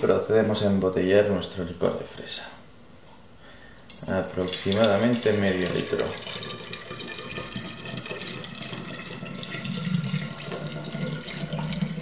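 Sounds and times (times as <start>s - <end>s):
liquid pouring through a funnel: 3.9s - 12.0s.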